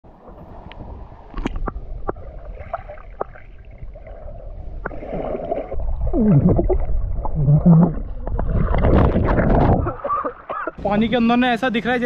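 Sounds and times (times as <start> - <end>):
stream water gurgling: 0.1 - 10.8.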